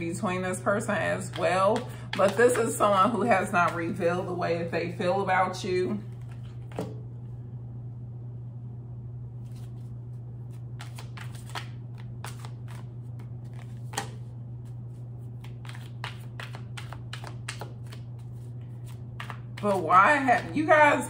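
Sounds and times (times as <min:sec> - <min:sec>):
steady low hum: 0:00.0 - 0:21.0
cards being shuffled: 0:06.0 - 0:07.0, 0:09.4 - 0:20.6.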